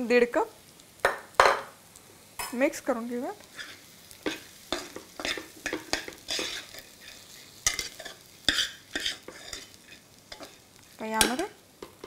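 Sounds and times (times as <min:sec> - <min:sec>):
light sizzle: 0:00.0 - 0:12.0
spatula scraping a pan: 0:03.4 - 0:12.0.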